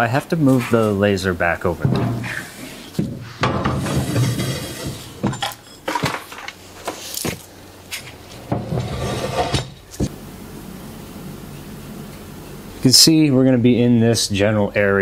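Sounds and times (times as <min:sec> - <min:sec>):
metal frame clattering and rattling: 0:01.8 - 0:06.6.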